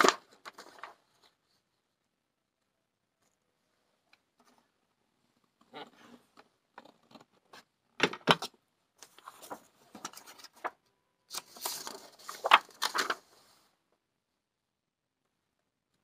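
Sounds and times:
paper rustling: 0:00.0 - 0:01.8, 0:06.8 - 0:13.6.

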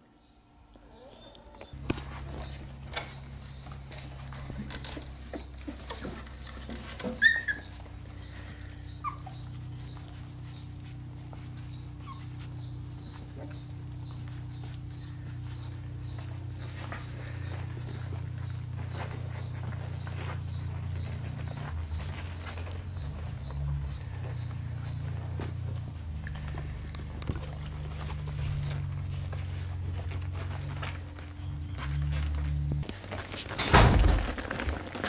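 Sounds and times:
steady low hum: 0:00.0 - 0:34.2
puppies whimpering and squeaking: 0:00.6 - 0:32.7
scratches and clicks of puppies moving: 0:01.0 - 0:35.0
puppy yelping: 0:07.0 - 0:07.9, 0:08.8 - 0:10.8, 0:11.6 - 0:14.8.

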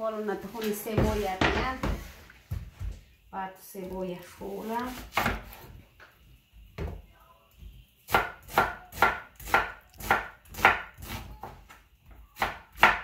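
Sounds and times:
knife slicing onion on wooden board: 0:04.8 - 0:05.8, 0:08.1 - 0:11.5.

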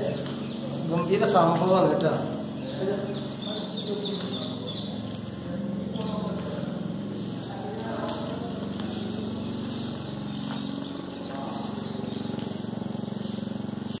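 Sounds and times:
lawn mower engine running: 0:00.0 - 0:14.0.

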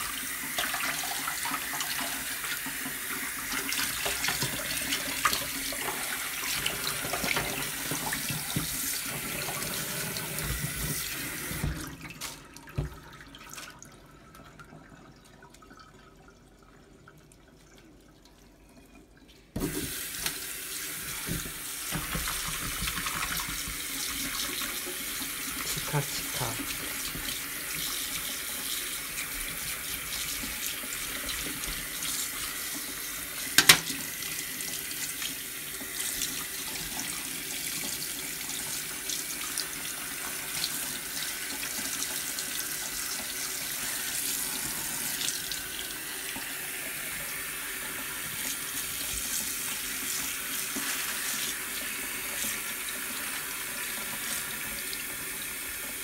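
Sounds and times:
tap running into steel sink: 0:21.1 - 0:23.9, 0:33.6 - 0:34.0.

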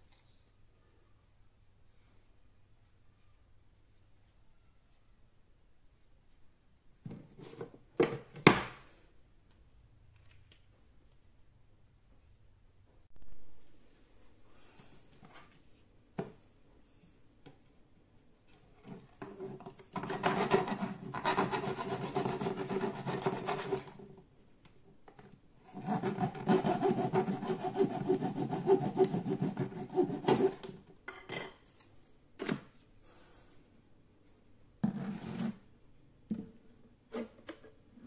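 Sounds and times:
hand tool rasping plastic pipe: 0:19.2 - 0:24.0, 0:25.6 - 0:30.8.

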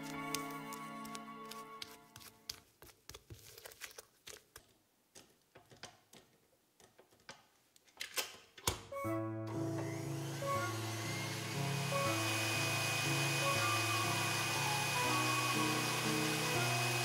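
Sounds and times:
background music: 0:00.0 - 0:02.4, 0:08.8 - 0:17.0.

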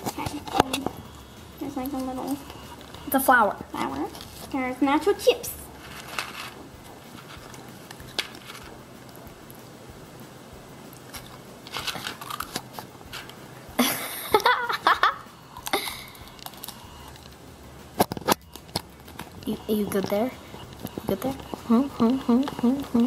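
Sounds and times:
chips crunching: 0:11.0 - 0:13.3.

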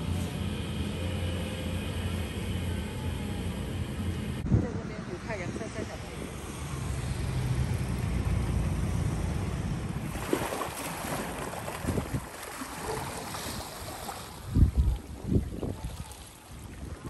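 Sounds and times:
traffic rumble: 0:00.0 - 0:13.2
wind buffeting microphone: 0:03.5 - 0:10.4, 0:11.5 - 0:12.4, 0:14.3 - 0:17.0.

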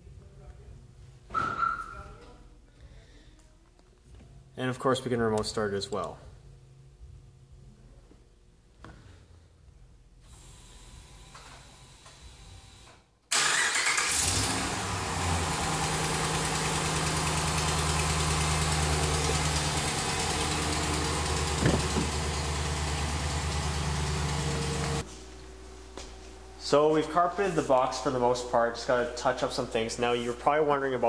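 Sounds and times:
truck engine starting and idling: 0:13.3 - 0:25.0.

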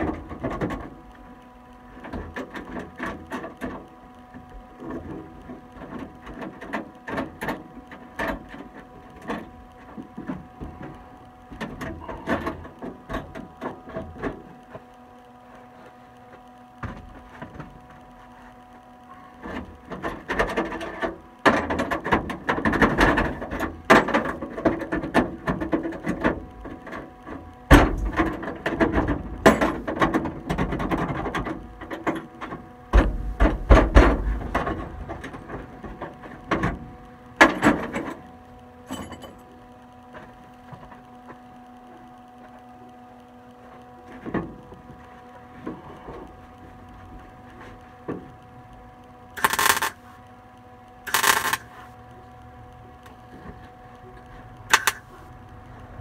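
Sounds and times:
steady hum: 0:00.0 - 0:56.0
welder crackling: 0:48.4 - 0:50.3, 0:50.9 - 0:52.0, 0:53.9 - 0:56.0.

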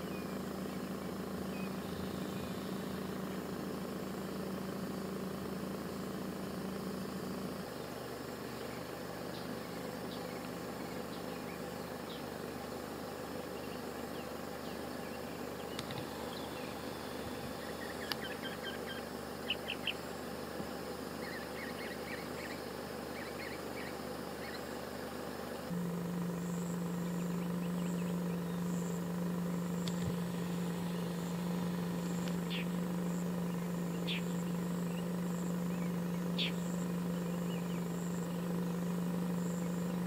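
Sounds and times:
low hum: 0:00.0 - 0:40.0
steady hiss: 0:24.0 - 0:40.0.

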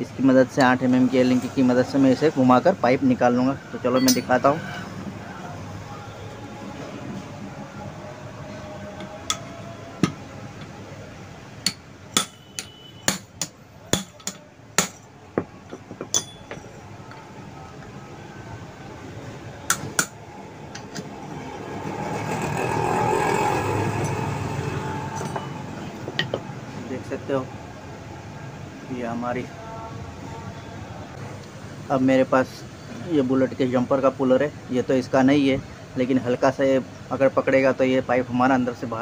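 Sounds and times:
hammer striking metal rod: 0:04.0 - 0:04.4, 0:09.3 - 0:10.2, 0:11.6 - 0:16.7
vehicle passing: 0:20.3 - 0:27.0.

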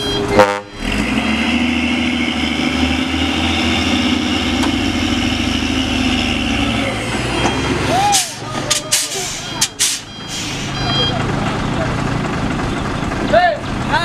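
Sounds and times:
diesel truck engine running: 0:00.0 - 0:14.0.

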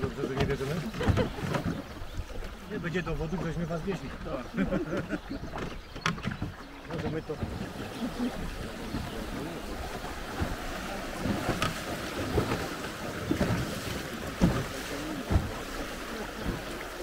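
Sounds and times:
river water rushing: 0:06.5 - 0:17.0.

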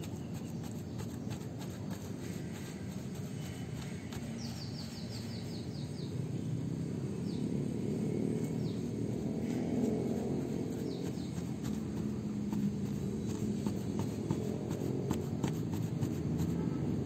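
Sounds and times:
paintbrush scrubbing on roof: 0:00.0 - 0:06.1, 0:08.6 - 0:17.0
bird chirping: 0:00.0 - 0:16.6.

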